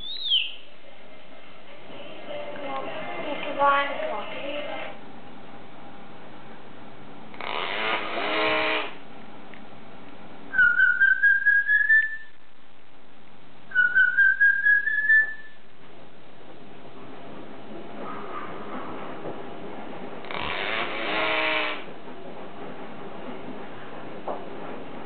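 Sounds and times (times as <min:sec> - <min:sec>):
bird pulsed whistle notes: 0:00.0 - 0:00.7, 0:10.5 - 0:12.4, 0:13.7 - 0:15.6.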